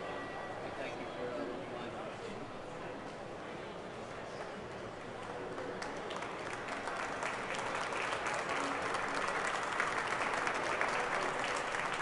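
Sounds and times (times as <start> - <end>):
crowd applauding: 5.5 - 12.0.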